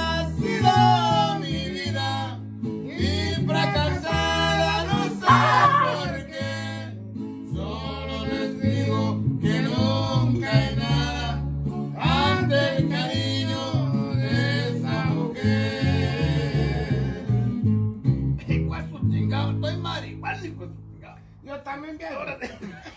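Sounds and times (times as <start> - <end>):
man singing: 0.0 - 17.2
guitar accompaniment: 0.0 - 21.4
low bass notes: 0.0 - 21.5.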